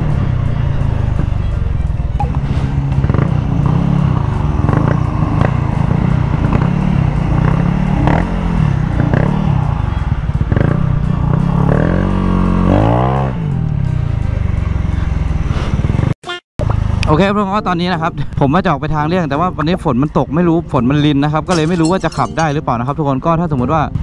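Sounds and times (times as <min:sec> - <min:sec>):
scooter engine revving: 0:02.4 - 0:09.6.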